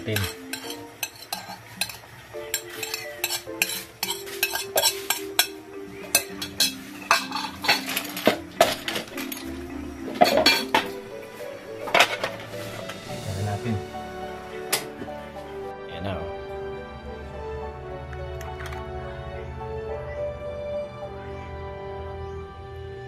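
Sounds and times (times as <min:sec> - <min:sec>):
metal spoon scraping and clinking: 0:00.0 - 0:09.5, 0:10.2 - 0:10.8.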